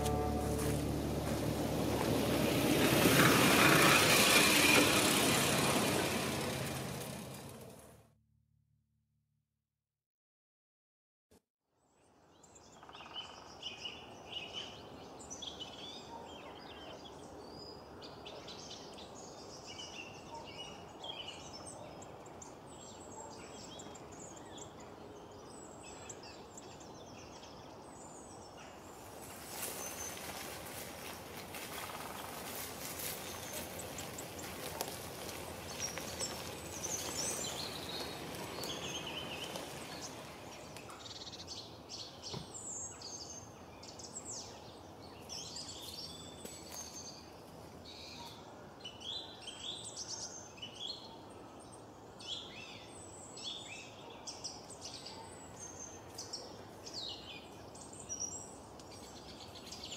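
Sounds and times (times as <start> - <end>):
small birds chirping: 12.4 - 59.9.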